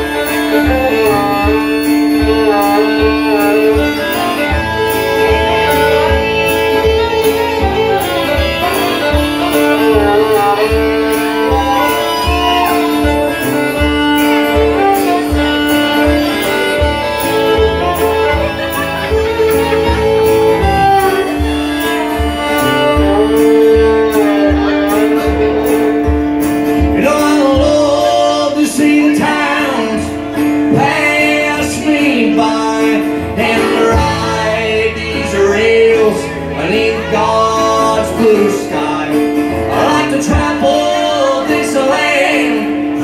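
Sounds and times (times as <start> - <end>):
fiddle playing: 0.0 - 43.0
strummed acoustic guitar: 0.0 - 43.0
man and woman singing: 27.0 - 43.0.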